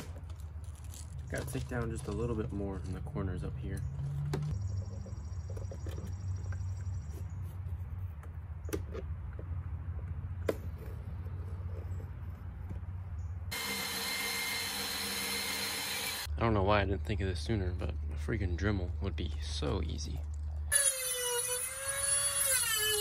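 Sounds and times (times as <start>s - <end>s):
power tool cutting plastic: 13.5s - 16.3s, 20.7s - 23.0s.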